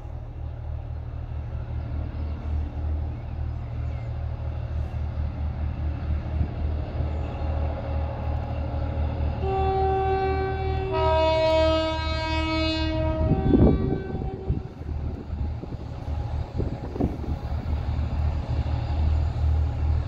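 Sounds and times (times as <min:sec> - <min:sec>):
diesel locomotive engine pulsing: 0:00.0 - 0:20.0
locomotive horn: 0:09.4 - 0:14.8.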